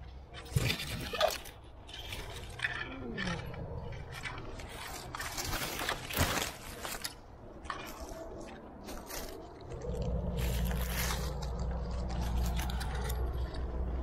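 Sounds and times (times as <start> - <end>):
scraping and rustling on rock: 0.3 - 14.0
low steady rumble: 7.2 - 14.0.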